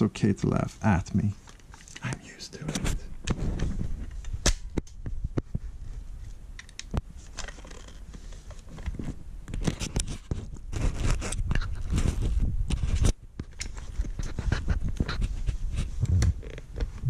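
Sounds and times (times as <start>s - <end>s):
clicks and knocks of rifle parts: 1.4s - 5.6s, 6.2s - 16.9s
low rumbling handling noise: 15.8s - 17.0s.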